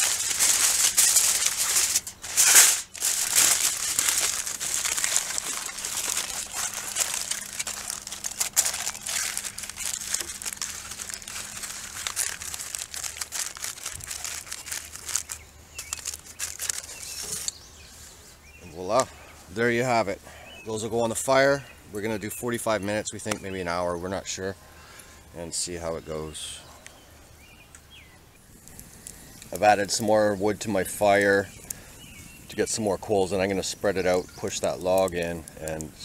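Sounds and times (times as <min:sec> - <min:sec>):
aluminium foil crinkling: 0:00.0 - 0:17.6, 0:28.4 - 0:36.0.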